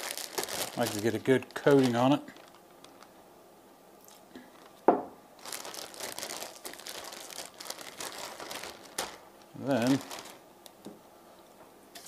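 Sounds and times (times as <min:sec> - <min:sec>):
plastic bag crinkling: 0:00.0 - 0:03.2, 0:04.5 - 0:04.8, 0:05.4 - 0:10.4
glass bottle set down on wood: 0:04.9 - 0:05.1.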